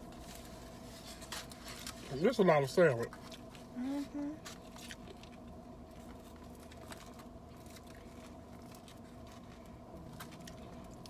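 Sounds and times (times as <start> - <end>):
steady hum: 0.0 - 11.0
soft chewing: 3.0 - 11.0.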